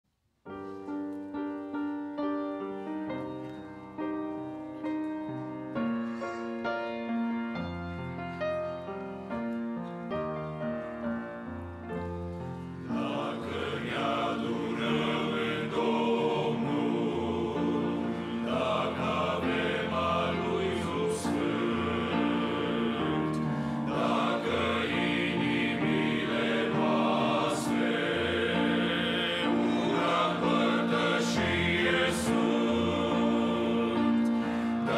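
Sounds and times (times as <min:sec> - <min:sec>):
men's choir singing a hymn: 0:12.8 - 0:34.9.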